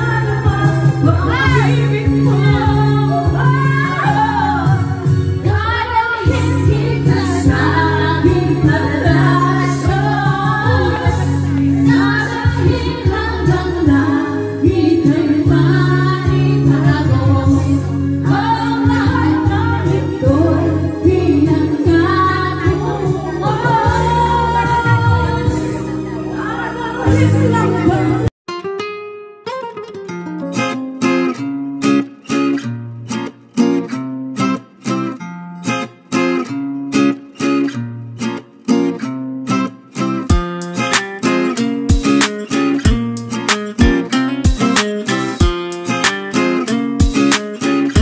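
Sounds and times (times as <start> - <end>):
woman singing: 0.0 - 28.3
instrumental backing music: 0.0 - 48.0.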